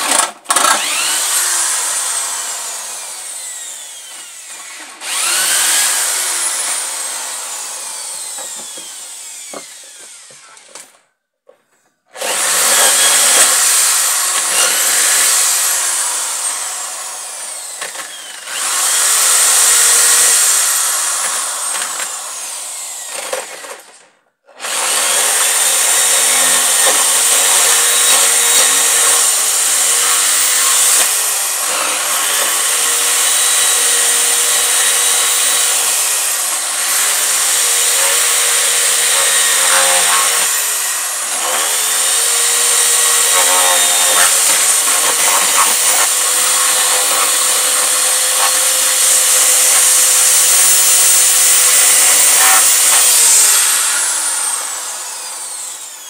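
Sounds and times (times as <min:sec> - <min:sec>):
electric drill boring into wood: 0:00.0 - 0:11.0, 0:12.1 - 0:56.0.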